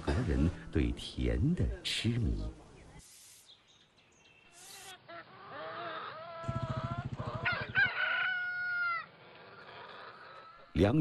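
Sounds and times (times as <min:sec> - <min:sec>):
rooster crowing: 0:05.4 - 0:10.1.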